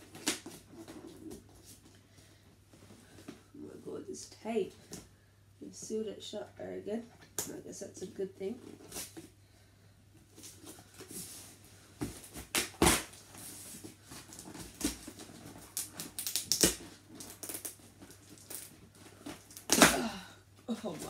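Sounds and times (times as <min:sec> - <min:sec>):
packing tape crackling: 0:14.1 - 0:19.9.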